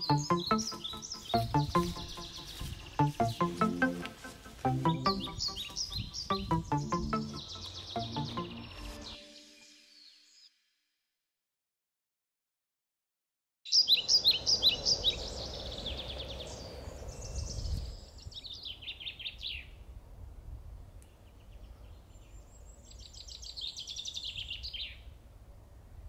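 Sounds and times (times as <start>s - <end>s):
songbirds chirping: 0.0s - 10.5s, 13.7s - 19.8s, 21.0s - 25.1s.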